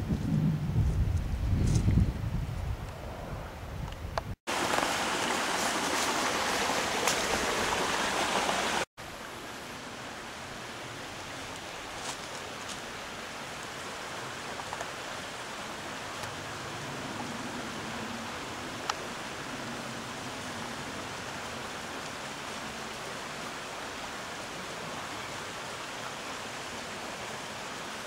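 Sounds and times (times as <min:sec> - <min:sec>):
creek water rushing: 0:04.5 - 0:28.0.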